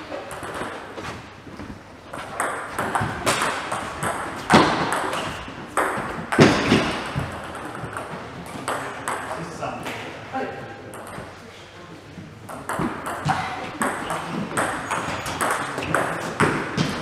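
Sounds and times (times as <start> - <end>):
table tennis ball clicking: 12.5 - 17.0.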